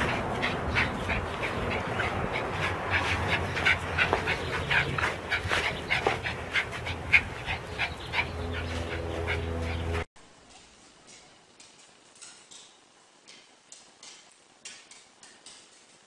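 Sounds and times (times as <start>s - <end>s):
dog panting: 0.0s - 10.1s.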